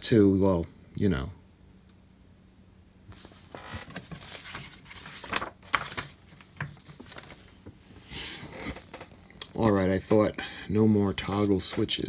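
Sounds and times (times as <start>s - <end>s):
glossy paper rustling: 3.1s - 9.1s.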